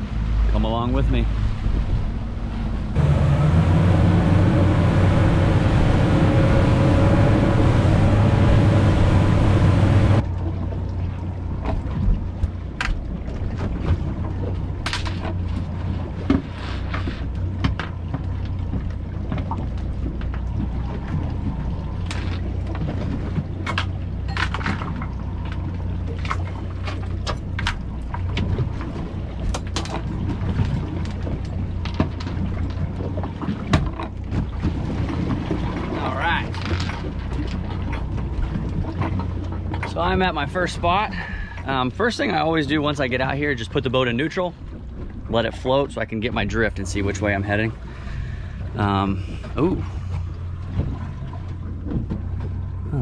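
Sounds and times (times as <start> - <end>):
boat engine running: 0.0 - 53.0
water rushing: 0.0 - 53.0
wind: 0.0 - 53.0
fishing tackle clicks and knocks: 22.0 - 28.6, 29.4 - 32.8.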